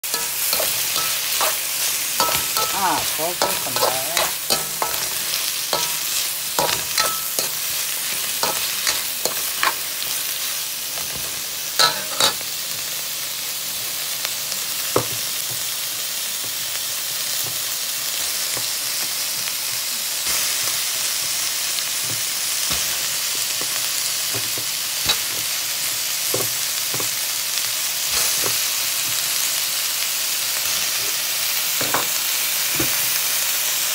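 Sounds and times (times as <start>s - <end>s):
utensil scraping metal pan: 0.0s - 9.9s, 11.8s - 12.4s
vegetables sizzling in oil: 0.0s - 33.9s.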